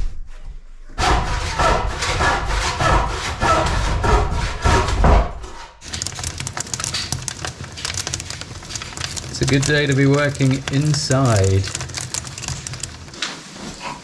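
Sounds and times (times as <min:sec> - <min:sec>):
rain pattering: 0:05.9 - 0:13.9.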